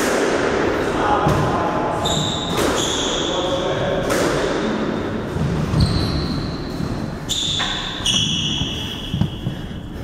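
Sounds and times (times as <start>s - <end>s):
high whistle-like tones: 5.8s - 9.6s.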